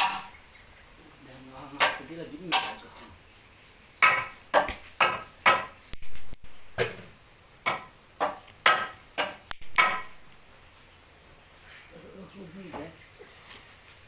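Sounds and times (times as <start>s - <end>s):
sharp knocks on wood: 4.0s - 6.1s, 6.8s - 10.2s.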